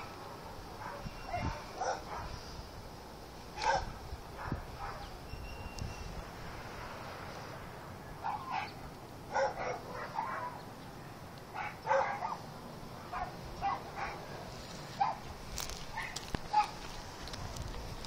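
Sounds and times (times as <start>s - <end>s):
dog barking: 0.8s - 2.4s, 3.6s - 5.1s, 8.2s - 10.6s, 11.6s - 12.4s, 13.1s - 14.2s, 15.0s - 15.2s, 16.0s - 16.8s.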